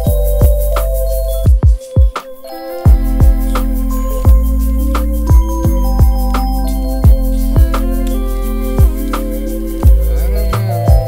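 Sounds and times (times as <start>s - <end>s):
held keyboard notes: 0.0s - 11.0s
slow electronic beat: 0.0s - 11.0s
deep kick drum hits: 2.9s - 6.4s, 7.0s - 7.8s, 8.8s - 9.1s, 9.8s - 11.0s.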